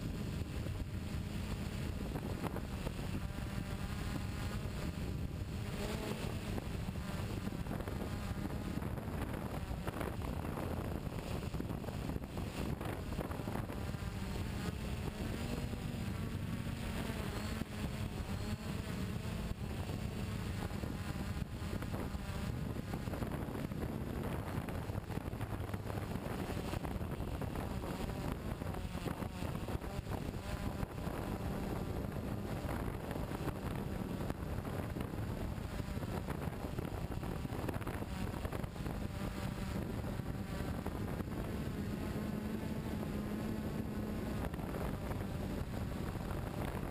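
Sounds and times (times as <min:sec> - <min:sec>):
model aircraft motor drone: 0:00.0 - 0:46.9
wind rushing over microphone: 0:00.0 - 0:46.9.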